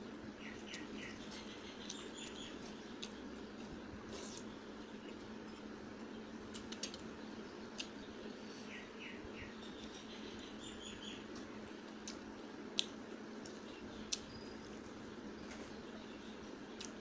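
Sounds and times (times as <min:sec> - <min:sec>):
small bird chirping: 0:00.2 - 0:12.2, 0:12.8 - 0:17.0
mouth clicks while chewing: 0:12.0 - 0:14.3, 0:16.8 - 0:17.0.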